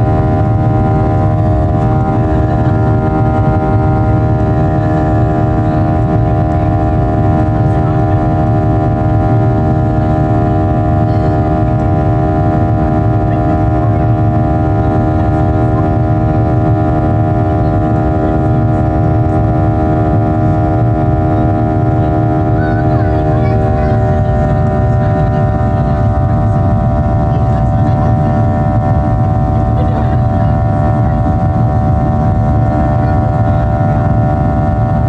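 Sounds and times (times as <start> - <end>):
engine tones: 0.0 - 35.0
jet cabin drone: 0.0 - 35.0.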